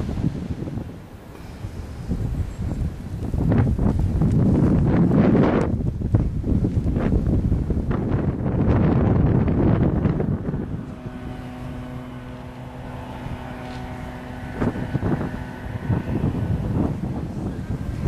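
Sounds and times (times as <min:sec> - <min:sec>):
engine drone with hum: 0:00.0 - 0:18.0
wind buffeting microphone: 0:00.0 - 0:18.0.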